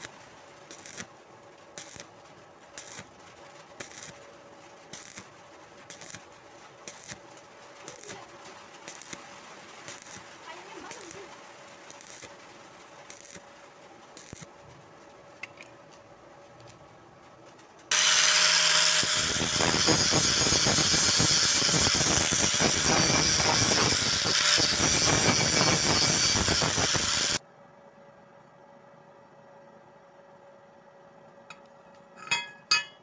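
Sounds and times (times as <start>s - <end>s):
angle grinder grinding steel: 17.9s - 27.4s.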